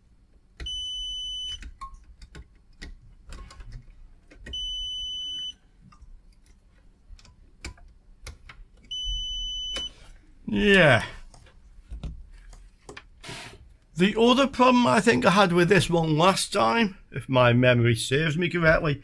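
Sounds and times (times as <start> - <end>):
multimeter continuity beeps: 0.6 - 1.7, 4.5 - 5.6, 8.9 - 10.0.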